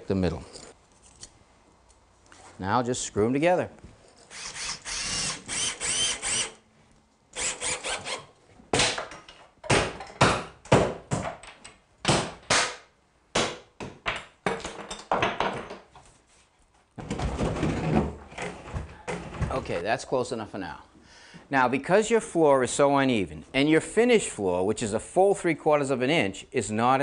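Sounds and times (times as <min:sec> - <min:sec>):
cordless drill motor whining: 0:04.3 - 0:06.6.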